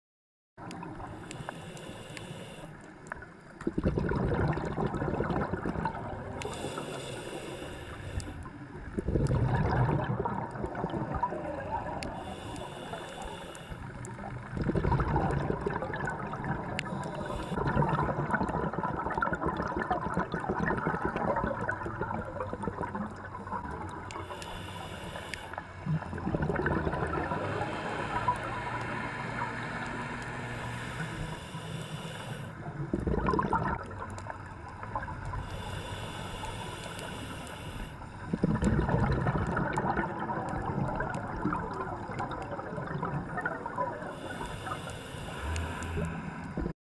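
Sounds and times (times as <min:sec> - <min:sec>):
regulator inhale hiss: 0:01.0 - 0:03.2, 0:06.4 - 0:08.7, 0:11.3 - 0:14.3, 0:16.7 - 0:17.6, 0:23.3 - 0:25.8, 0:27.3 - 0:29.1, 0:30.1 - 0:32.6, 0:35.2 - 0:38.4, 0:44.0 - 0:46.7
exhaled bubbles rushing: 0:03.6 - 0:06.8, 0:08.8 - 0:12.2, 0:14.1 - 0:24.2, 0:25.8 - 0:31.1, 0:32.6 - 0:35.3, 0:38.3 - 0:44.4.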